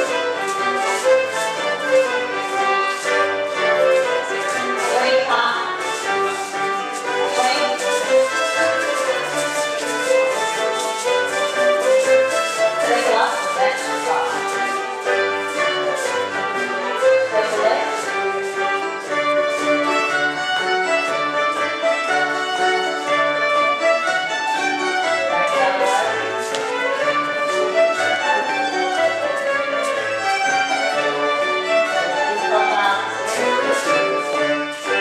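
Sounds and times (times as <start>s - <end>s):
fiddle playing a tune: 0.0s - 35.0s.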